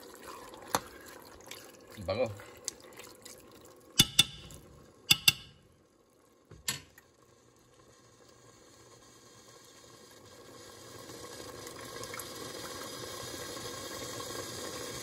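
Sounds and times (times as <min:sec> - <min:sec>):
beef sizzling in pot: 0:00.0 - 0:15.0
metal spoon knocking pot: 0:04.0 - 0:05.6.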